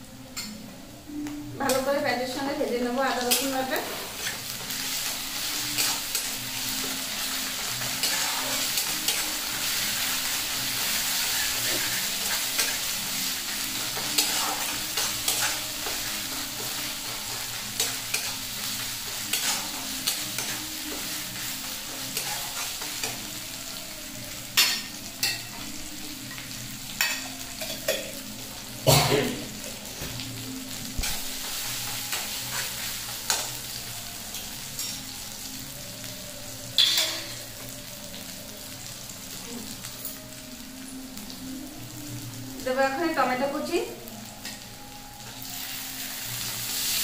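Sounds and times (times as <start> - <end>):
onions sizzling in oil: 0.0 - 47.0
metal spatula scraping pan: 7.8 - 9.3.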